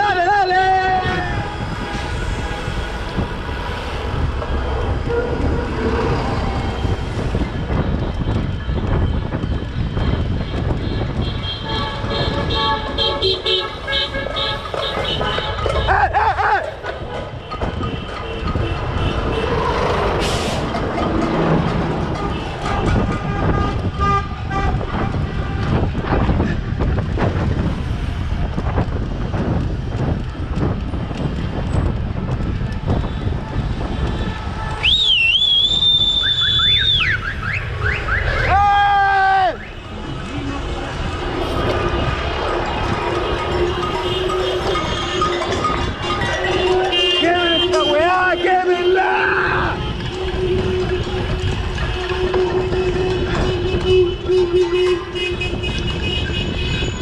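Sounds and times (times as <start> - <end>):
wind rumble on microphone: 0.8 - 38.9, 39.7 - 47.8, 49.4 - 57.0
bus and car engines running: 1.1 - 57.0
car horn honking: 10.1 - 16.0, 22.0 - 25.9, 39.5 - 57.0.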